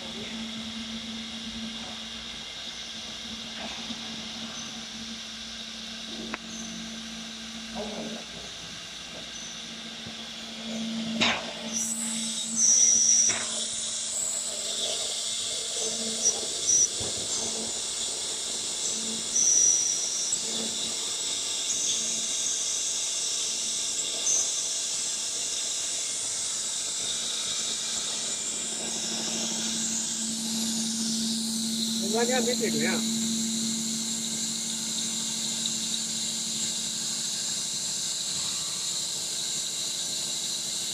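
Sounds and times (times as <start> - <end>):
router spindle whining: 9.2 - 21.0, 26.0 - 40.9.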